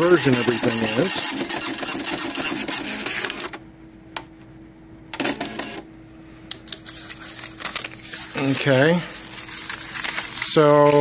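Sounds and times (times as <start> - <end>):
dot-matrix printer chatter: 0.0 - 3.5, 5.2 - 5.8
faint steady hum: 2.5 - 11.0
printer clicks: 5.2 - 5.8.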